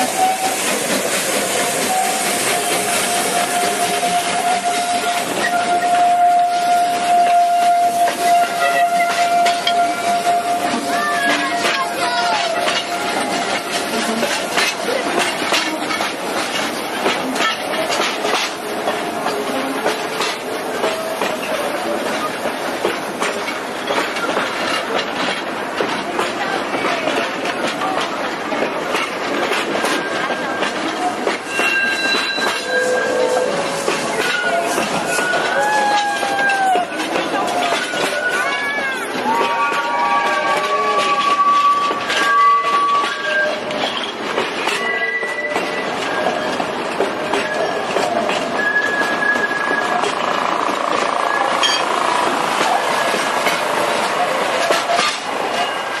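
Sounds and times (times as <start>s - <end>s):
wheels clacking over rail joints: 0.0s - 56.0s
wheel squeals: 29.8s - 50.3s.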